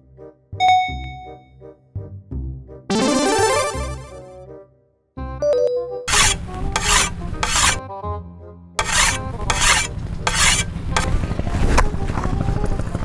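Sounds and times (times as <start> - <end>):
sharpening stone rasping on blade: 6.1 - 7.8, 8.8 - 11.2.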